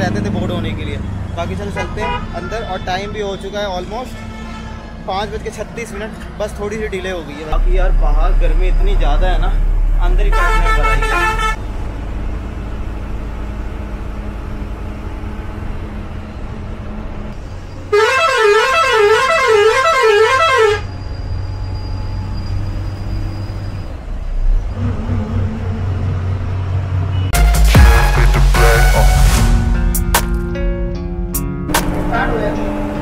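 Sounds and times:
bus engine running: 0:05.4 - 0:33.0
loud warbling horn: 0:10.2 - 0:11.6, 0:17.9 - 0:20.9, 0:27.4 - 0:29.6.

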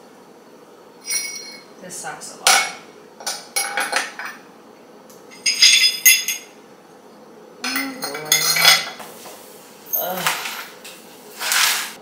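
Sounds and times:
broken glass clinking: 0:05.3 - 0:06.5.

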